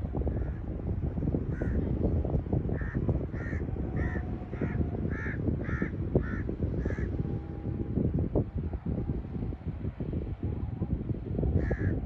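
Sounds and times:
steady low rumble: 0.0 - 12.0
crows cawing: 2.8 - 7.1, 11.6 - 12.0.

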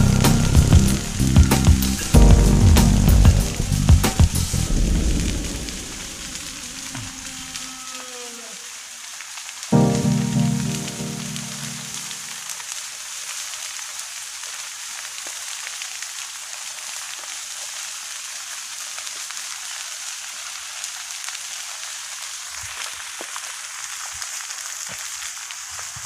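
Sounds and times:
vegetation fire crackling: 0.0 - 7.7, 8.9 - 26.0
soft low thumps: 0.5 - 5.8.

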